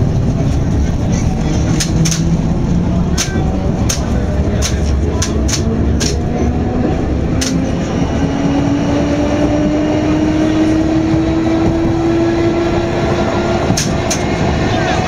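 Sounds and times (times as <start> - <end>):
train running rumble: 0.0 - 15.0
sharp track click: 1.7 - 2.4, 3.1 - 6.3, 7.4 - 7.7, 13.7 - 14.4.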